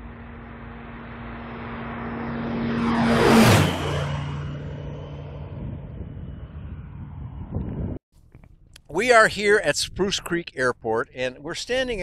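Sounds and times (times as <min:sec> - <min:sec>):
light aircraft passing low: 0:00.0 - 0:08.0.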